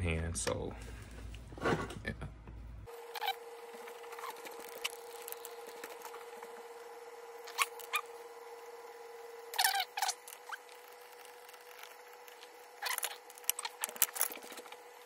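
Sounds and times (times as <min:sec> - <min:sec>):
screwdriver metal clicks and squeaks: 0:09.6 - 0:14.8.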